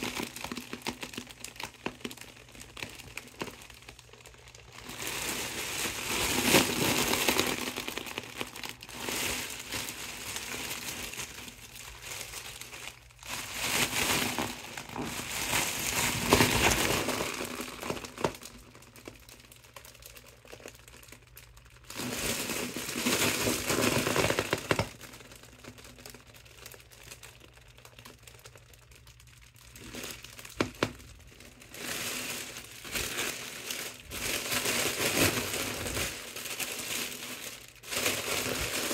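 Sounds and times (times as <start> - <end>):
foil balloon crinkling: 0.0 - 38.9.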